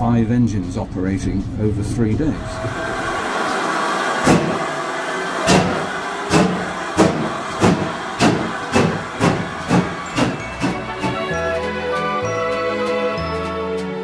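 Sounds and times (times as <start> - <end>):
steam engine exhaust chuffs: 2.3 - 11.6.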